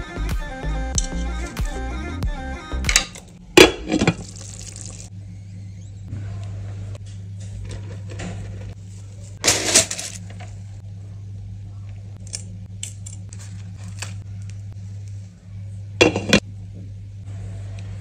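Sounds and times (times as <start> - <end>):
steady low hum: 0.0 - 18.0
metal and glass cookware clattering: 16.0 - 16.4.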